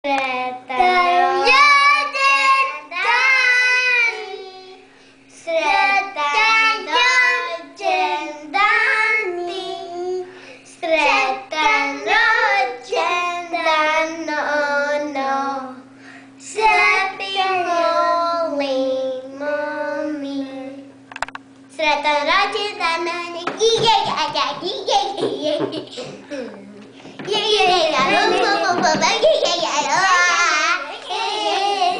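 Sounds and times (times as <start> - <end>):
young children singing: 0.1 - 10.3, 10.9 - 15.8, 27.3 - 29.0, 29.8 - 31.9.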